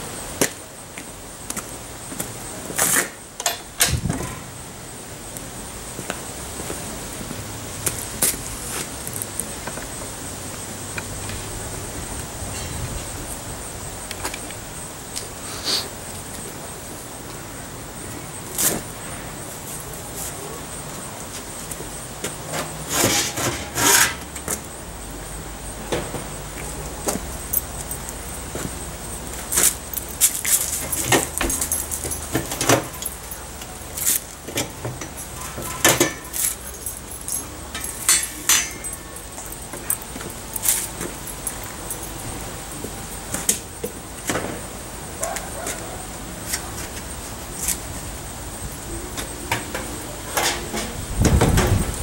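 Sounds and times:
outdoor background noise: 0:00.0 - 0:52.0
scattered clicks and knocks: 0:29.3 - 0:42.1
metal clanks and clinks: 0:29.4 - 0:42.3, 0:49.5 - 0:51.8.

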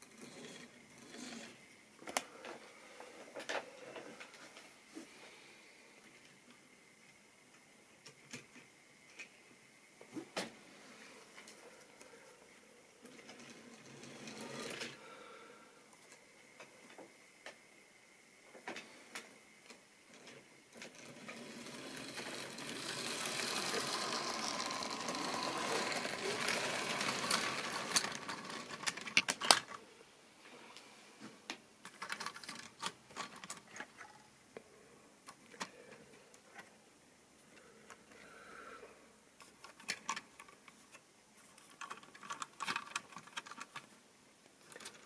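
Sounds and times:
model train wheels clicking on track: 0:00.0 - 0:01.6, 0:13.2 - 0:15.0, 0:20.1 - 0:29.8.

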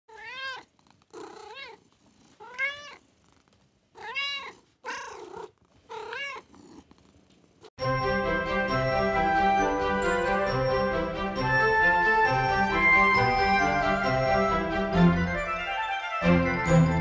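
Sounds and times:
cat meowing: 0:00.1 - 0:01.8, 0:02.4 - 0:03.0, 0:04.0 - 0:06.5.

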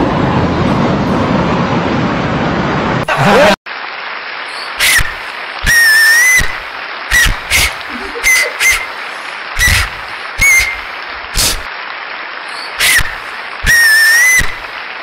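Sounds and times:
steady hiss: 0:03.7 - 0:15.0
short high whistles: 0:04.5 - 0:09.0, 0:09.6 - 0:11.7, 0:12.5 - 0:14.6.

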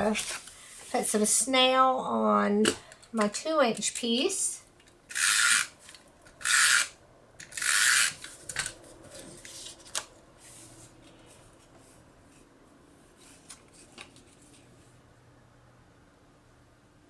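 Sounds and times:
paper handling: 0:08.2 - 0:11.9.

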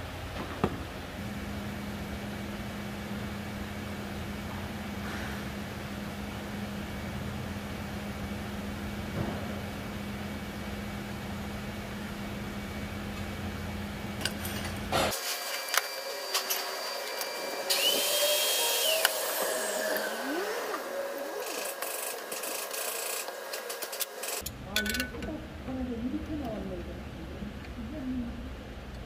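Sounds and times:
steady hum: 0:00.0 - 0:29.0
small power tool whirring: 0:15.1 - 0:24.4
hand tools clicking and clattering: 0:21.4 - 0:25.4.

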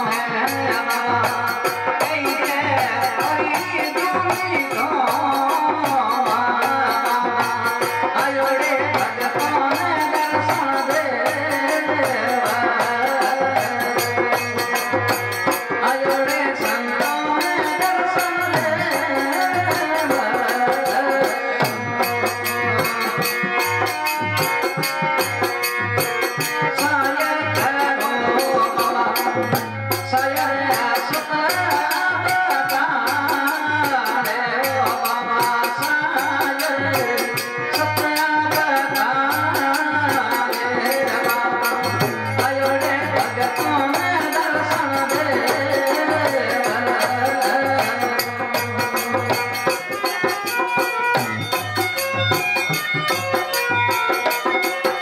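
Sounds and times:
harmonium melody: 0:00.0 - 0:55.0
hand drum beat: 0:40.9 - 0:55.0.

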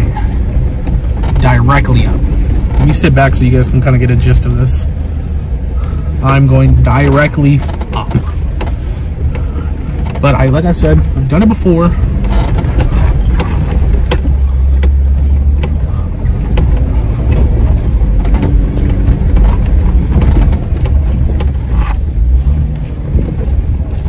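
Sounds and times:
knocks and rattles: 0:00.7 - 0:03.9, 0:06.8 - 0:24.0
engine droning under load: 0:07.6 - 0:24.0.

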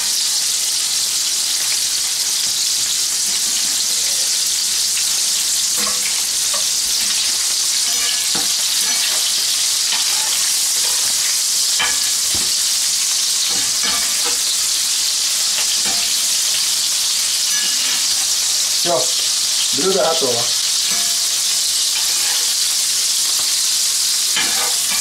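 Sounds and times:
prawns sizzling in oil: 0:00.0 - 0:25.0
metal fork clinking on pan: 0:05.8 - 0:06.7.

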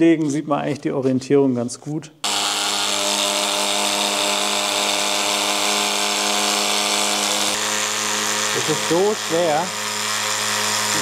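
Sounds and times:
electric fabric cutter running: 0:02.2 - 0:11.0.

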